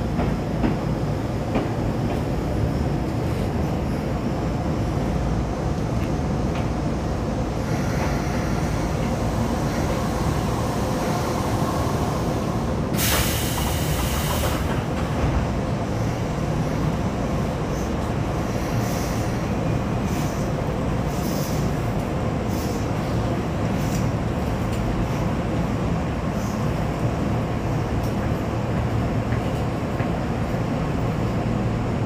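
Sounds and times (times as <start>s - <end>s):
train wheels rumbling on rail: 0.0s - 32.0s
loud hiss: 12.9s - 14.7s.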